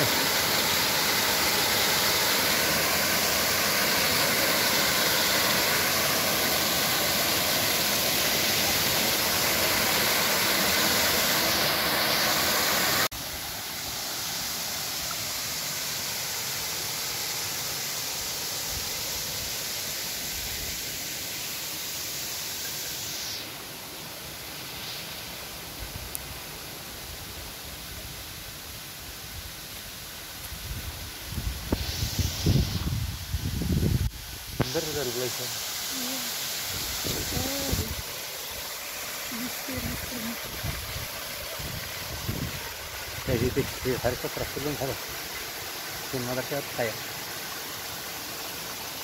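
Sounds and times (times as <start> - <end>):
waterfall splashing into pool: 0.0 - 23.6, 34.0 - 49.0
stream running over rocks: 0.0 - 49.0.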